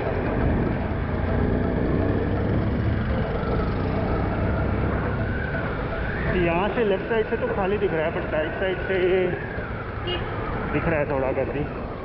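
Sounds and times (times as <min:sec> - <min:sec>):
motorcycle engine running: 0:00.0 - 0:05.8
wind and road noise: 0:00.0 - 0:12.0.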